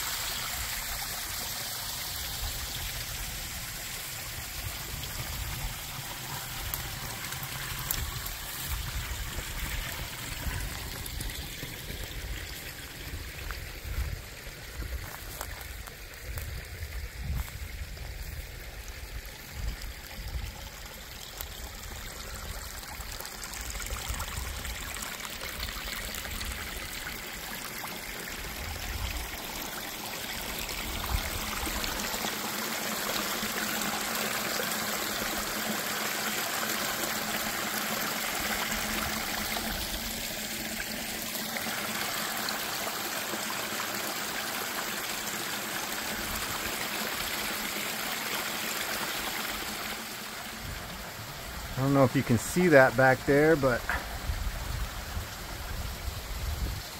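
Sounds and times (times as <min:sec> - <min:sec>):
creek water rushing over rocks: 0:00.0 - 0:56.9.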